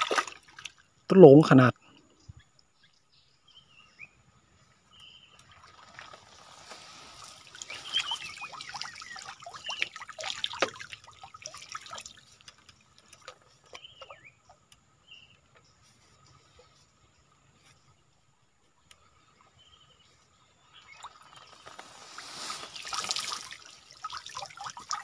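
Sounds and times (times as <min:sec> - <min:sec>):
water trickling and dripping: 0:05.0 - 0:14.8, 0:22.1 - 0:25.0.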